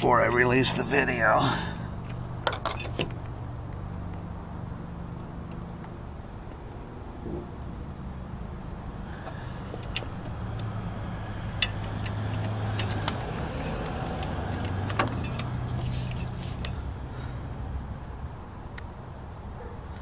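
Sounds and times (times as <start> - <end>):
vehicle engine humming: 0.0 - 20.0
torque wrench clicking: 9.7 - 16.8.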